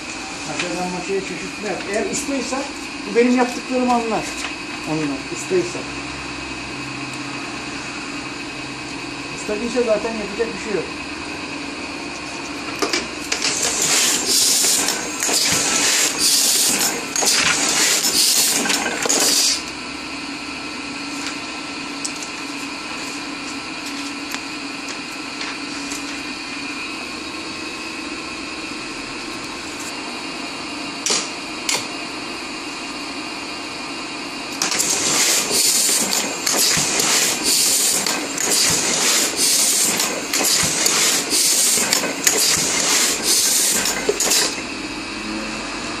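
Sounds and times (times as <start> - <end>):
printing press mechanical hum: 0.0 - 46.0
loud hissing bursts: 13.5 - 19.6, 34.7 - 44.5.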